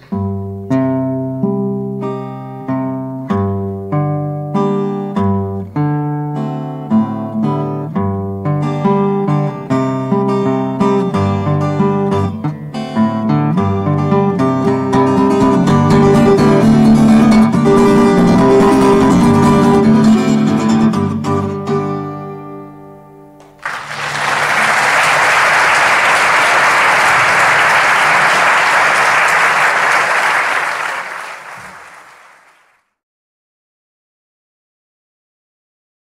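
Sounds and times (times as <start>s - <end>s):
acoustic guitar chords: 0.0s - 25.4s
audience applauding: 23.4s - 32.8s.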